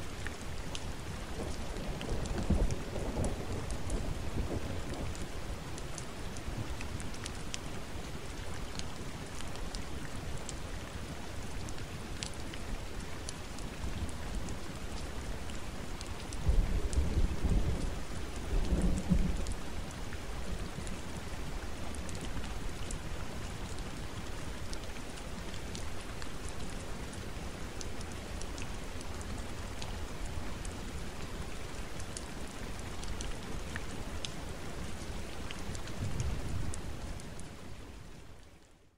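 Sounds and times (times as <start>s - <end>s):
rain falling in forest: 0.0s - 38.9s
low rumble of thunder: 1.4s - 5.3s, 16.4s - 19.6s, 36.0s - 36.8s
rain drop ticks: 4.8s - 7.7s, 11.4s - 37.5s.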